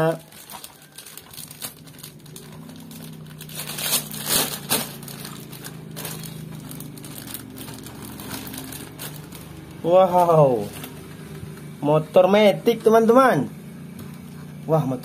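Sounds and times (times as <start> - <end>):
plastic bag crinkling: 0.0 - 11.4
steady low hum: 0.2 - 15.0.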